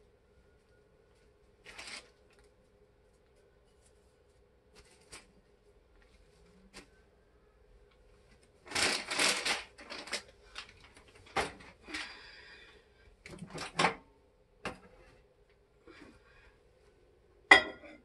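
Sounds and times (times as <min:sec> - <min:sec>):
plastic bag crinkling: 0:01.6 - 0:02.5, 0:08.6 - 0:11.4.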